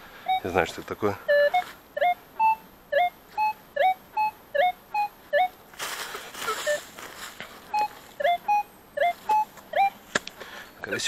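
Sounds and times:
metal detector beeps: 0.2 - 5.6, 6.3 - 7.0, 7.6 - 10.0
rustling: 5.3 - 10.5.

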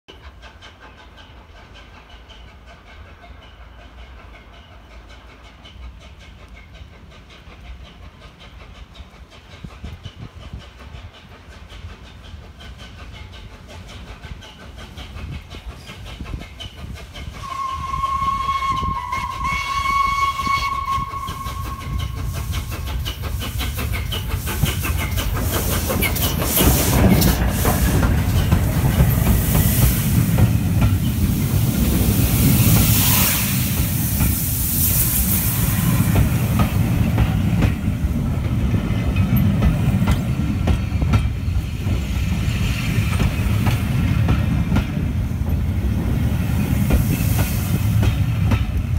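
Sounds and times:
hissing steam: 0.1 - 48.9
train coaches rumbling past: 0.1 - 48.9
steam locomotive whistle: 17.4 - 22.7, 32.4 - 36.3.

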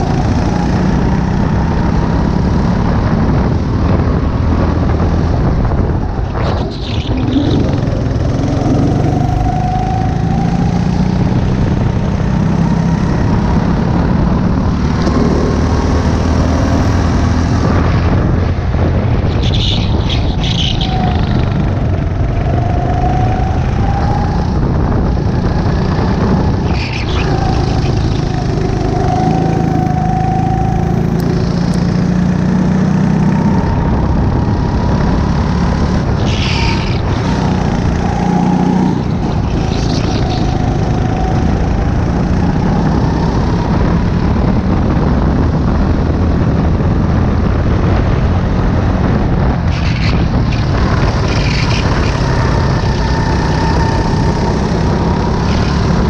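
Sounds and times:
wind rush on microphone: 0.0 - 56.0
kart engine revving: 4.2 - 47.6, 48.2 - 56.0.

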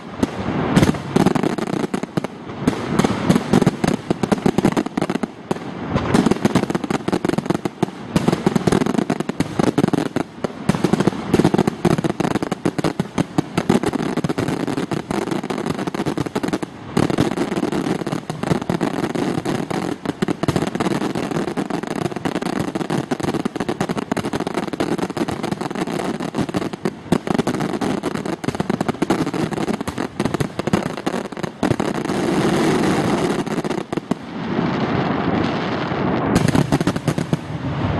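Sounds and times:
fireworks bangs and crackle: 0.0 - 37.9.

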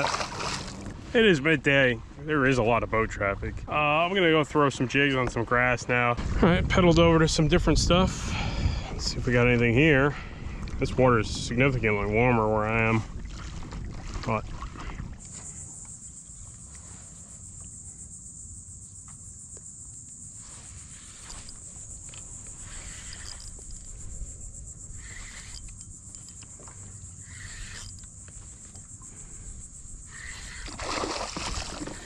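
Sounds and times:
insects chorus: 0.0 - 13.6, 14.3 - 32.0
rumble of wind and water: 0.0 - 32.0.

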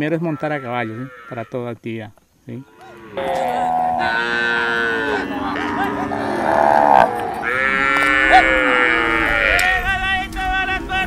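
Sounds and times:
cattle mooing: 2.7 - 9.9.

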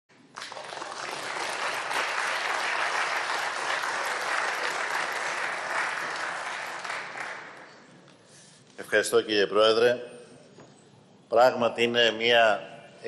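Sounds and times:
applause: 0.2 - 7.8.

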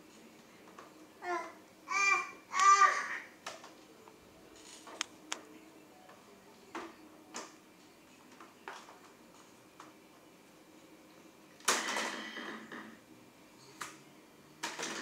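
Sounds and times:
toddler singing: 1.2 - 3.3.

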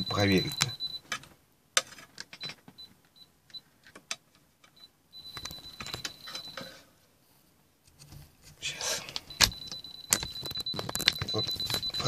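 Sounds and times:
multimeter beeping: 0.0 - 1.1, 5.2 - 6.8, 9.2 - 12.0.

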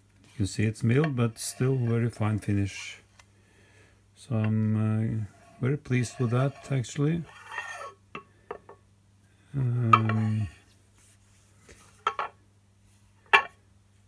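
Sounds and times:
person humming: 9.5 - 10.6.

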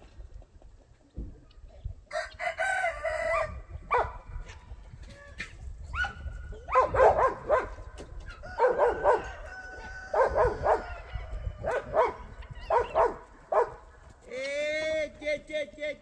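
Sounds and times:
dog barking: 3.4 - 4.2, 5.9 - 7.8, 8.5 - 9.4, 10.0 - 13.8.

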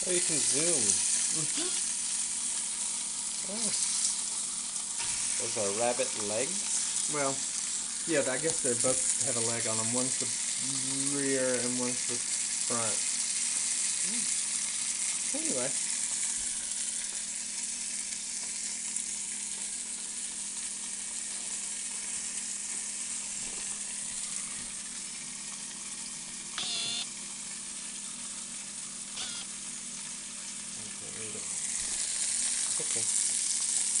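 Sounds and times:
meat sizzling in hot oil: 0.0 - 34.0
brief high squeak: 29.2 - 29.5.

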